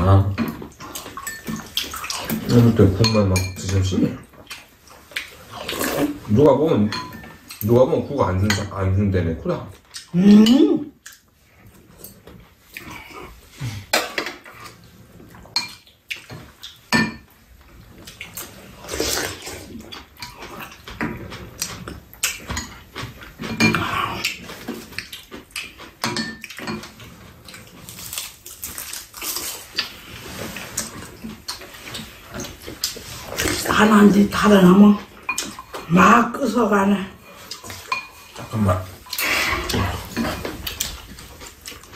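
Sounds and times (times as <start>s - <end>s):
utensils clinking on ceramic bowls: 0.3s - 4.0s, 6.7s - 8.8s, 26.0s - 27.0s, 37.6s - 40.9s
chewing: 4.2s - 6.3s, 9.7s - 16.9s, 17.6s - 33.8s, 37.2s - 41.9s
slurping: 4.5s - 6.4s, 18.0s - 28.4s, 37.2s - 41.9s.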